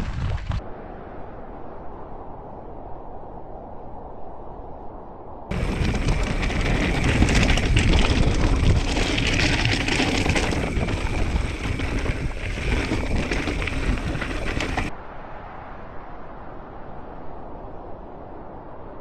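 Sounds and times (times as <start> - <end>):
wind buffeting microphone: 0.0 - 0.7, 5.5 - 14.9
bike rattling: 5.5 - 14.9
bike tyres crunching over stones: 5.5 - 14.9.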